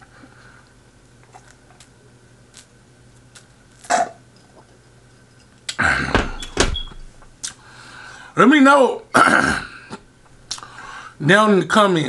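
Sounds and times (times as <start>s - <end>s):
mouth clicks: 10.5s - 10.7s.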